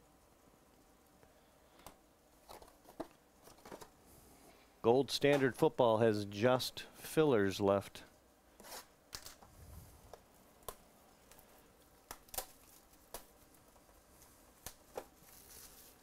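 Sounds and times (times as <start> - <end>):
soft plastic crinkling: 0.8 - 4.7, 8.5 - 16.0.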